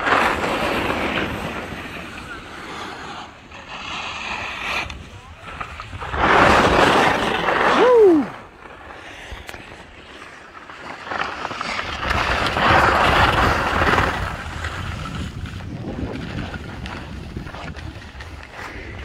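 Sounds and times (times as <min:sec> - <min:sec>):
wind rushing over microphone: 0:00.0 - 0:10.0, 0:11.8 - 0:19.0
skis hissing over snow: 0:00.0 - 0:19.0.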